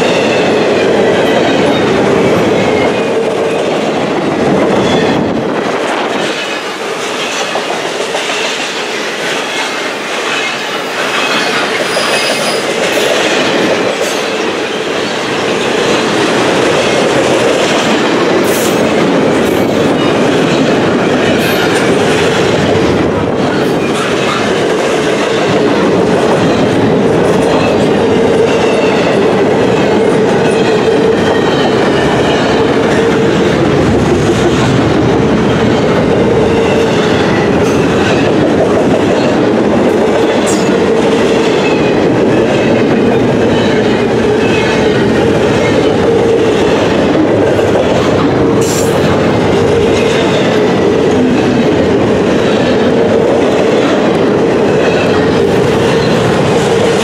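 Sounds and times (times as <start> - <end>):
freight train wheels rumbling: 0.0 - 57.0
high wheel squeals: 11.2 - 12.7.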